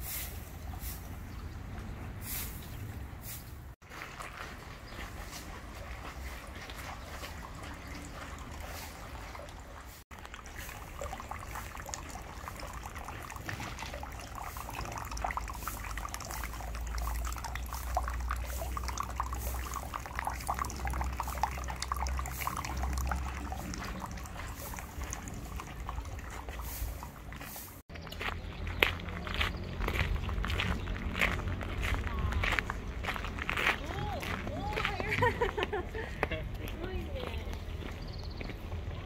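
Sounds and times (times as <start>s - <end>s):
water trickling into stone basin: 3.9s - 31.6s.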